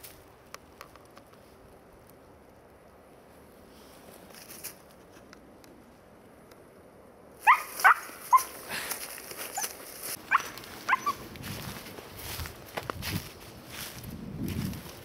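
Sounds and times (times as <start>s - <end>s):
rustling through dry brush: 0.0s - 5.8s, 7.4s - 15.0s
puppy yelping: 7.4s - 8.6s, 10.3s - 11.2s.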